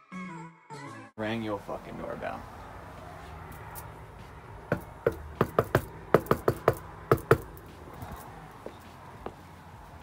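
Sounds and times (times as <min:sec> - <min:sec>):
knuckles knocking on door: 0:04.7 - 0:07.5.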